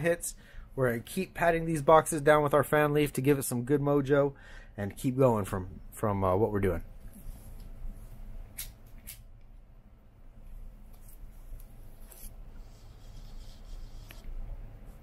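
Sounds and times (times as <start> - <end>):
low steady hum: 0.0 - 15.0
faint rubbing and handling noises: 7.0 - 8.3, 10.6 - 15.0.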